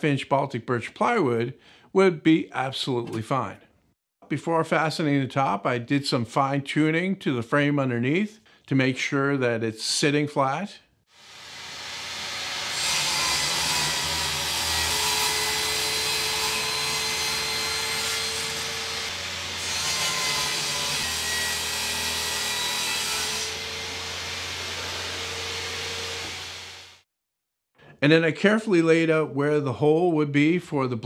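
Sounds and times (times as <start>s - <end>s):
power tool cutting wood: 11.1s - 27.1s.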